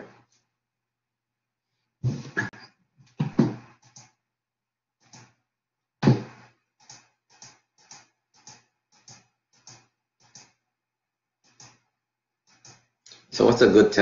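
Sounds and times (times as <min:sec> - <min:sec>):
sharp knock: 0:06.0 - 0:06.4
light evenly spaced clicks: 0:06.8 - 0:10.6, 0:12.5 - 0:13.2.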